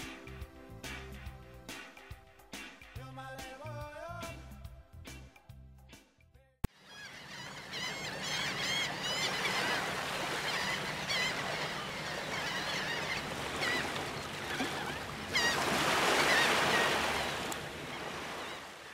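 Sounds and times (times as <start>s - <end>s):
birds chirping: 6.7s - 18.9s.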